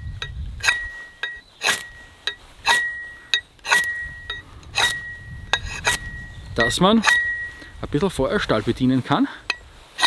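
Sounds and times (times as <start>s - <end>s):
rod scraping steel: 0.0s - 7.8s, 9.4s - 10.0s
steel ringing with high tone: 0.1s - 7.7s.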